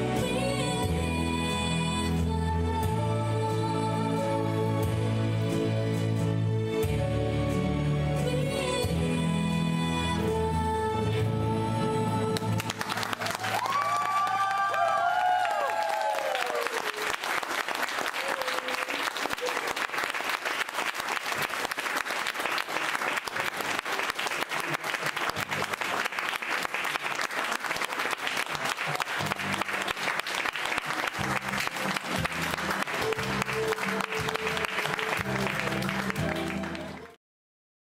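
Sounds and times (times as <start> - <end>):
crowd applauding: 12.4 - 37.2.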